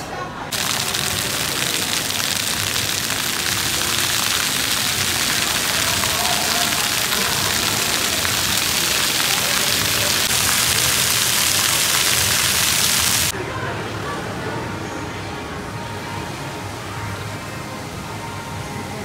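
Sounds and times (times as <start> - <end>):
fountain water splashing on tiles: 0.5 - 13.3.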